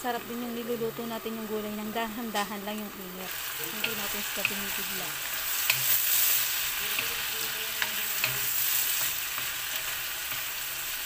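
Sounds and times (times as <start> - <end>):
vegetables sizzling in a wok: 0.0 - 11.0
spatula tapping a pan: 3.6 - 10.6.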